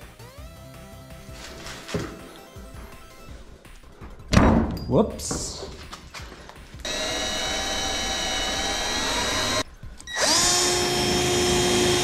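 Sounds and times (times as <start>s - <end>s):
cordless drill driving screws: 6.8s - 12.0s.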